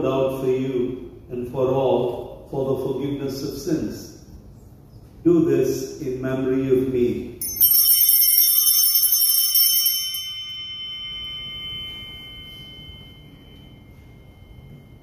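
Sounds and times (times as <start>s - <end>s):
altar bells ringing: 7.4s - 15.0s.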